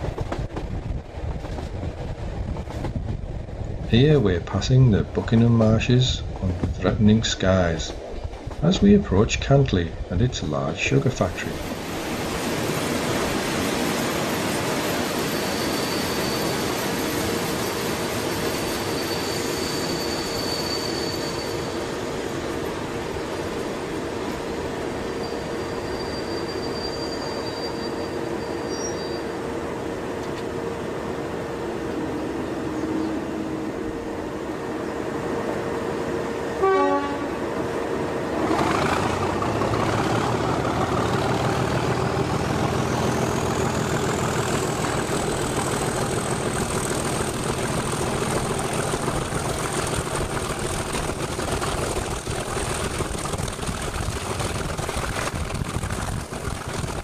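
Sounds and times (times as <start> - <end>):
locomotive horn toot: 36.6 - 37.4
diesel locomotive engine idling: 37.5 - 56.9.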